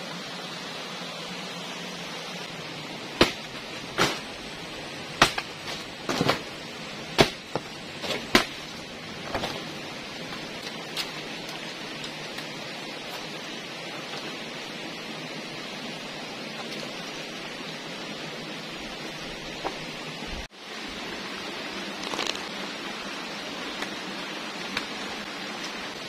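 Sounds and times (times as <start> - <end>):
leaves rustling and flapping: 21.0 - 26.0.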